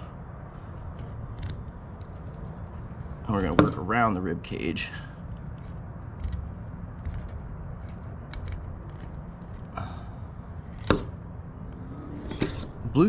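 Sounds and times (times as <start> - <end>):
knife scraping fish bones: 0.8 - 3.6, 5.2 - 9.7, 10.6 - 11.0.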